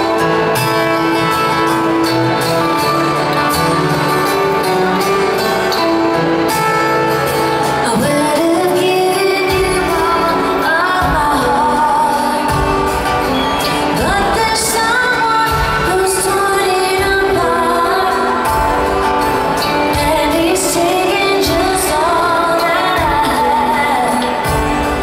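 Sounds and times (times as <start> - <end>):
pop-rock band playing: 0.0 - 25.0
woman singing: 7.6 - 25.0.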